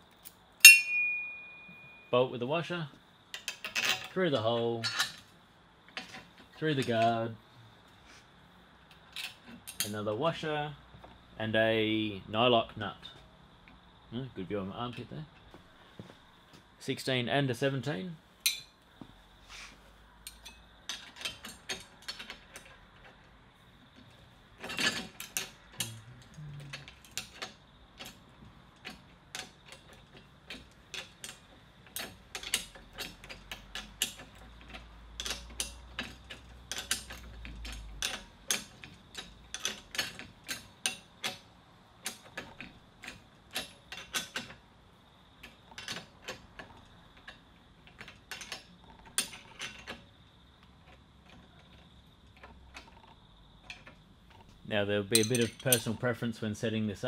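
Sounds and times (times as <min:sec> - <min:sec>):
spanner clicking on metal: 0:18.4 - 0:18.7, 0:20.2 - 0:23.2, 0:24.6 - 0:44.6, 0:45.4 - 0:50.1, 0:55.1 - 0:56.0.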